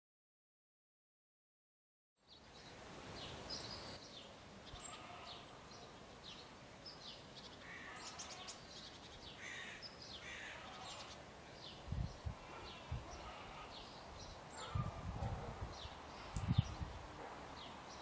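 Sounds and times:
faint outdoor hiss: 0:02.2 - 0:18.0
small birds chirping: 0:02.2 - 0:18.0.

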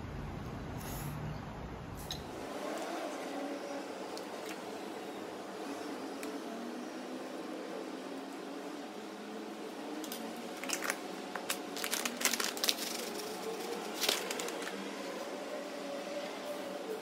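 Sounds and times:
plastic pouch crinkling: 0:10.0 - 0:14.8.

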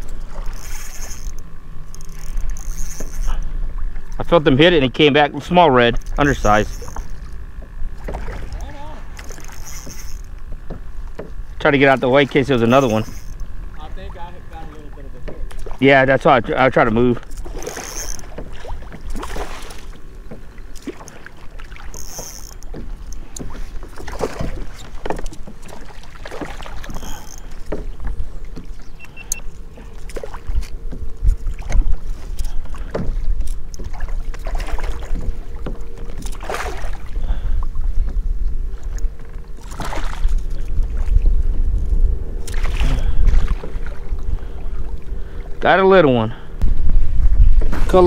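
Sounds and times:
water splashing: 0:00.0 - 0:37.6, 0:38.8 - 0:41.3, 0:42.4 - 0:46.2
faint steady hum: 0:00.0 - 0:47.5
fishing rod and gear knocks: 0:00.4 - 0:03.4, 0:05.8 - 0:08.2, 0:09.2 - 0:11.4, 0:12.5 - 0:13.5, 0:21.9 - 0:25.8, 0:26.8 - 0:36.4
wind buffeting microphone: 0:22.0 - 0:48.0.

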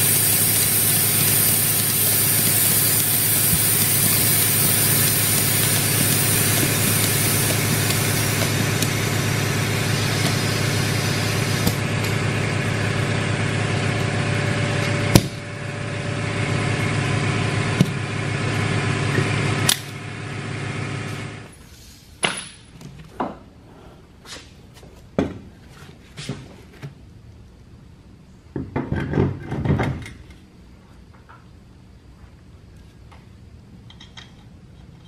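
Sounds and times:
motor humming: 0:00.0 - 0:21.2.

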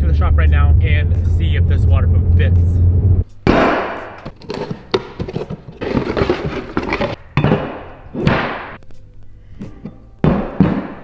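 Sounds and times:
cardboard rustling and scraping: 0:04.2 - 0:07.2.

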